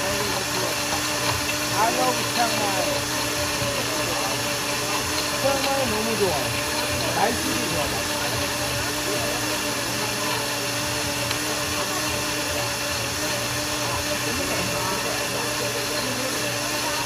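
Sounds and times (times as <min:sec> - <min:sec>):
blender motor running: 0:00.0 - 0:17.0
faint voices: 0:00.0 - 0:17.0.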